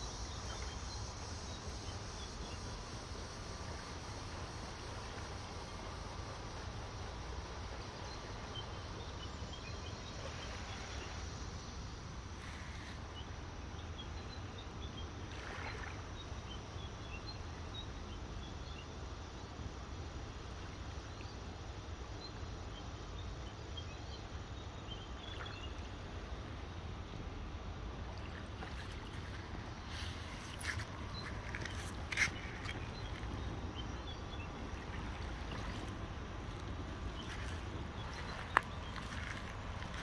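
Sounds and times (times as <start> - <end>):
small waves lapping on shore: 0.0 - 18.5, 24.6 - 40.0
steady low rumble: 25.8 - 40.0.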